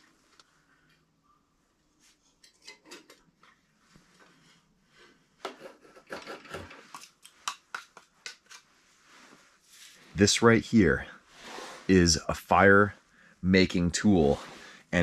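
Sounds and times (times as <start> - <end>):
knife scraping wood: 5.4 - 7.1.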